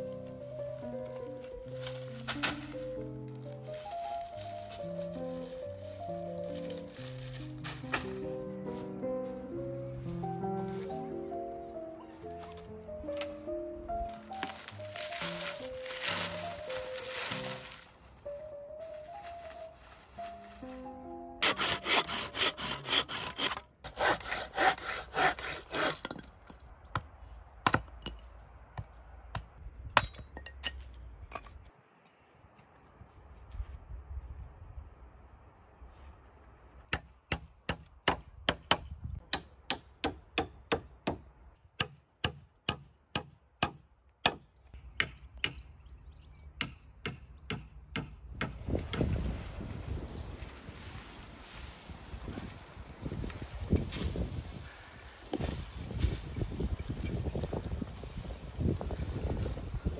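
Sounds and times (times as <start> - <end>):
rasping sawing strokes: 21.4 - 26.1
sharp evenly spaced knocks: 36.9 - 45.7, 46.6 - 49.0.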